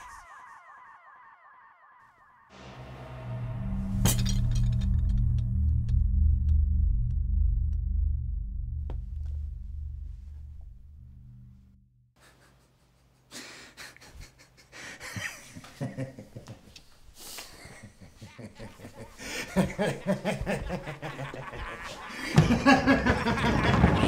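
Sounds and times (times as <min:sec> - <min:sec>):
person snickering: 0:12.2 - 0:16.6, 0:17.2 - 0:24.0
person panting heavily: 0:13.2 - 0:15.4, 0:19.1 - 0:19.9, 0:21.8 - 0:22.4.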